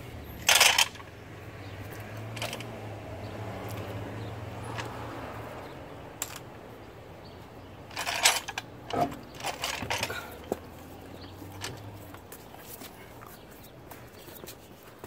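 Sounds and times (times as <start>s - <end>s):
metallic clinks of lug nuts: 0.4s - 1.1s, 2.2s - 2.7s, 7.9s - 10.6s.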